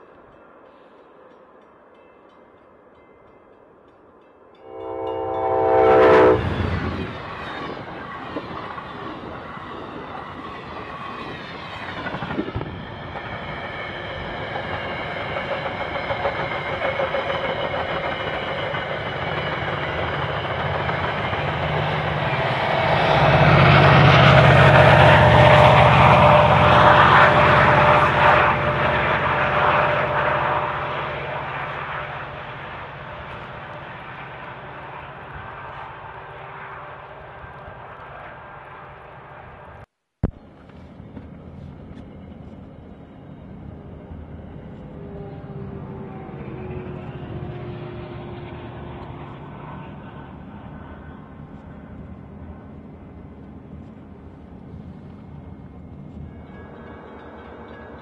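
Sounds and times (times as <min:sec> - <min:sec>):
train whooshing past: 0:00.0 - 0:39.9, 0:40.6 - 0:58.0
train wheels rumbling: 0:04.1 - 0:58.0
train horn: 0:04.6 - 0:07.1, 0:21.9 - 0:32.5.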